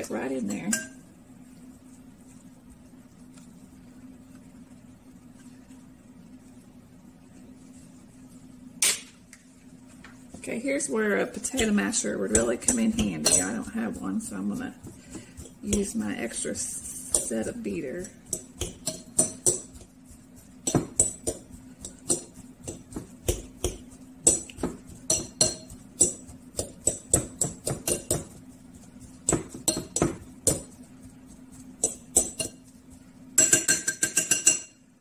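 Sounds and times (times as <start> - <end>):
metal beater clinking against bowl: 0.6 - 1.0, 12.3 - 13.7, 24.2 - 28.2, 33.4 - 34.8.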